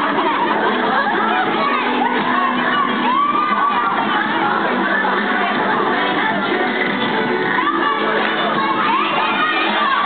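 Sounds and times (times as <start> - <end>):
crowd cheering and shouting: 0.0 - 10.0
long shout: 1.6 - 4.4.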